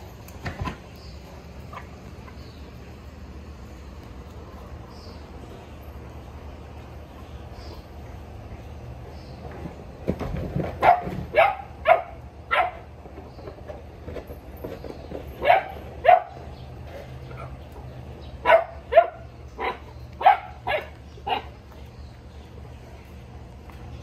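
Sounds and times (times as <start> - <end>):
dogs barking: 10.7 - 13.0, 15.3 - 21.7.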